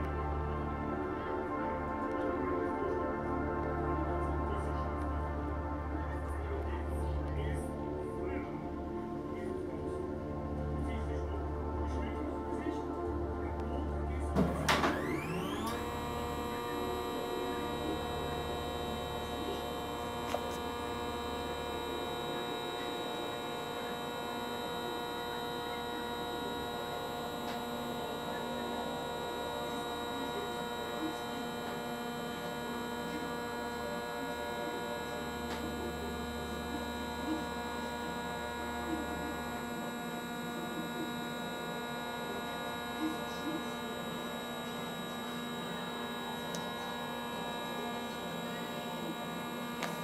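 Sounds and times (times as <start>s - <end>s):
low hum: 0.0s - 50.0s
telescope drive motors whining: 14.5s - 50.0s.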